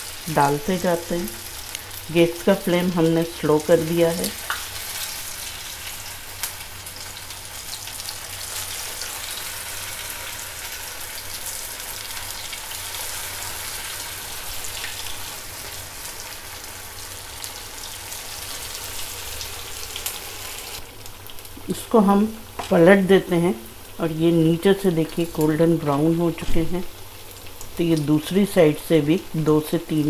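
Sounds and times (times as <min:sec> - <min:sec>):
food frying in hot oil: 0:00.0 - 0:30.0.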